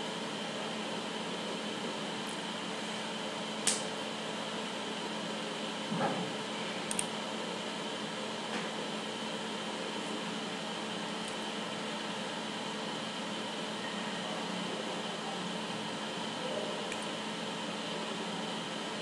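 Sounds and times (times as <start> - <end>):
room noise hum and hiss: 0.0 - 19.0
sharp click: 3.6 - 3.9.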